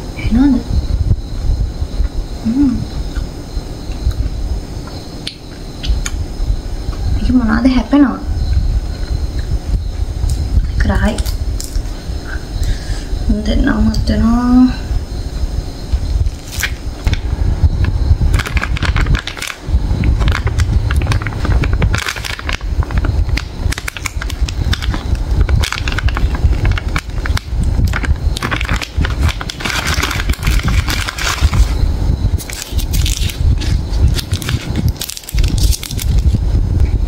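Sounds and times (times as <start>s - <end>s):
low handling rumble: 13.2s - 37.0s
plastic bag crinkling and tearing: 16.4s - 17.2s, 18.3s - 31.8s, 32.4s - 36.4s.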